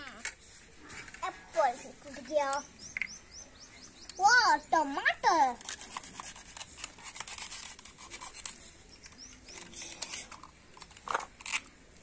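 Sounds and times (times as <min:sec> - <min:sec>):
toys clicking and scratching: 0:00.0 - 0:03.2, 0:05.0 - 0:11.7.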